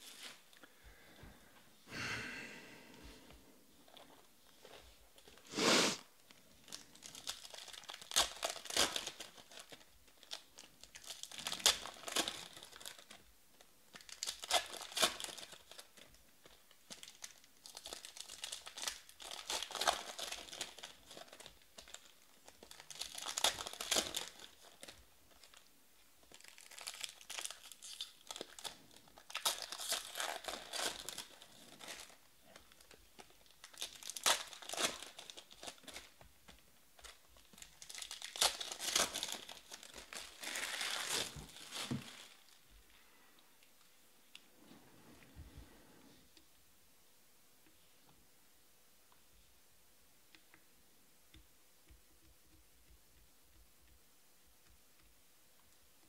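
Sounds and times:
foil packs crinkling and tearing: 0:06.6 - 0:13.2, 0:13.9 - 0:36.2, 0:37.0 - 0:42.6.

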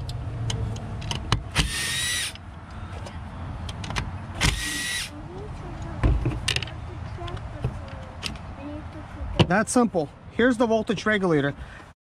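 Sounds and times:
cordless driver motor whining: 0:01.5 - 0:02.4, 0:04.4 - 0:05.1.

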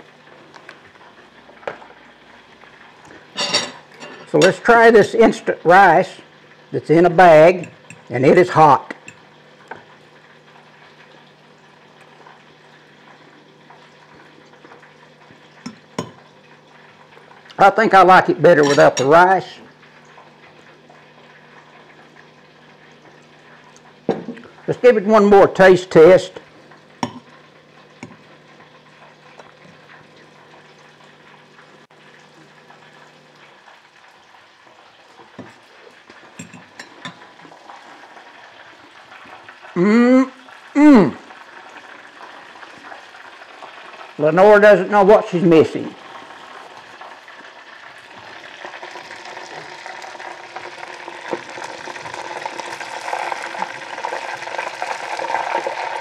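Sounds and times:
food deep-frying in oil: 0:00.0 - 0:56.0
metal fork clinking on plate: 0:03.4 - 0:04.6, 0:18.6 - 0:19.1.

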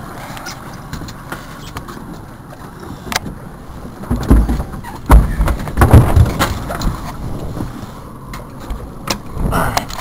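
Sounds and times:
heavy low thuds: 0:04.1 - 0:06.7.

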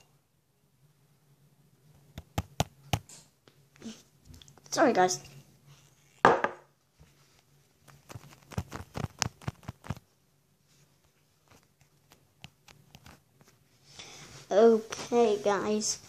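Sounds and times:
fingers rubbing on microphone: 0:07.8 - 0:10.0.

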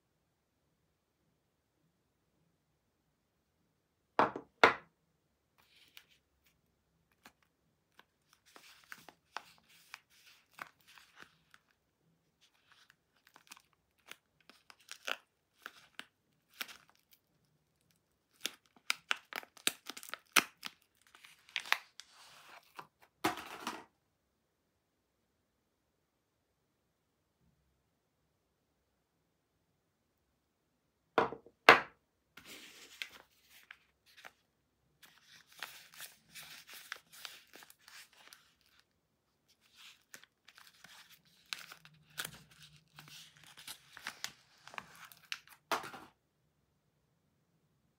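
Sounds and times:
soap knocking on wooden table: 0:04.2 - 0:04.8, 0:31.2 - 0:31.9
wrapper crinkling: 0:12.4 - 0:22.8, 0:35.0 - 0:38.9, 0:39.5 - 0:45.7
wrapper tearing: 0:12.5 - 0:22.0, 0:35.0 - 0:38.9, 0:39.6 - 0:45.6.

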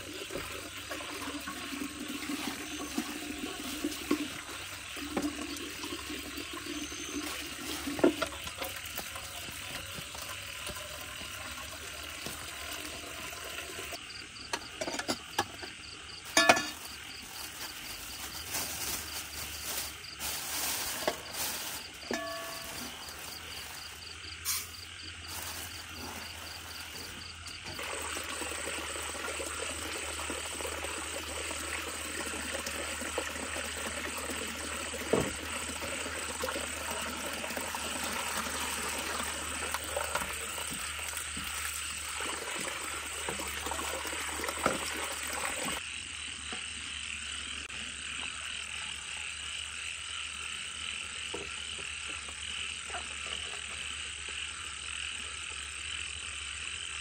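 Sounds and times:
insects chirring: 0:00.0 - 0:57.0
frogs croaking: 0:13.9 - 0:57.0
kitchen basins knocking: 0:14.5 - 0:16.9, 0:20.6 - 0:23.8.

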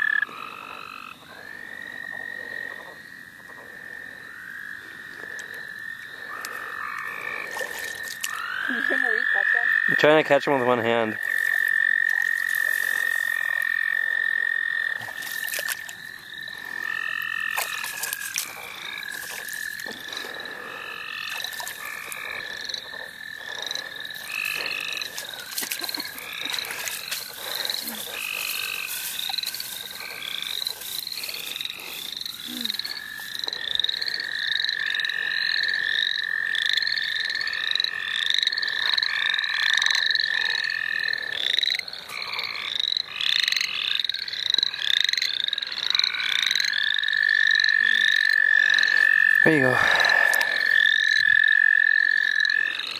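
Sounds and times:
chorus frog calls: 0:00.0 - 0:52.9.

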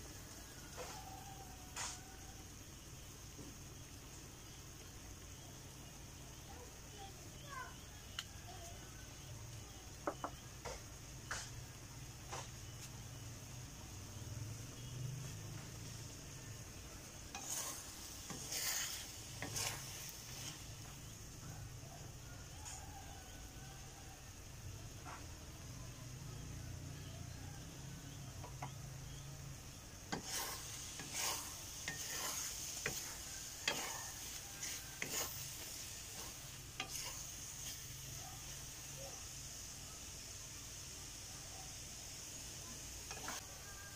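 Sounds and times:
food sizzling in a wok: 0:00.0 - 0:43.9
wooden spatula scraping a pan: 0:10.0 - 0:13.2, 0:14.7 - 0:21.2, 0:30.1 - 0:38.7, 0:43.0 - 0:43.9.

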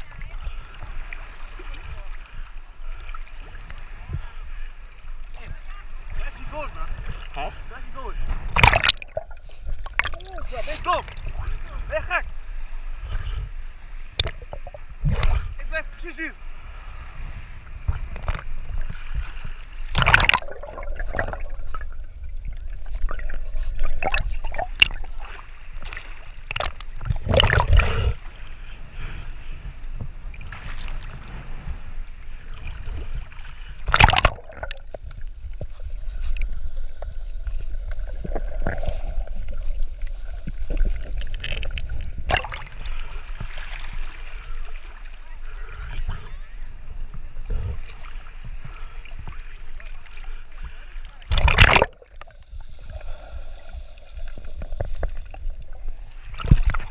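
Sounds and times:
sea water sloshing and lapping: 0:00.0 - 0:56.9
water splashes and gurgles: 0:00.0 - 0:56.9.

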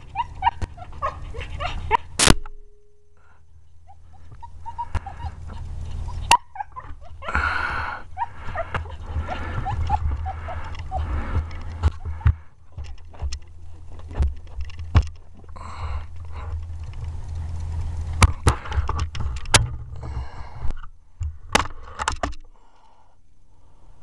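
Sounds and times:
low rumble: 0:00.0 - 0:21.9
clicks and knocks from handling rifle: 0:11.5 - 0:15.5.

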